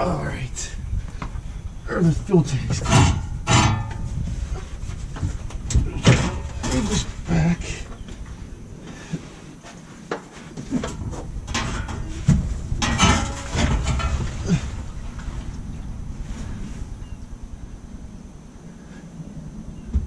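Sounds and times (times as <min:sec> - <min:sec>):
metal parts knocking and scraping: 0:02.7 - 0:04.1, 0:05.2 - 0:07.2, 0:10.8 - 0:14.5.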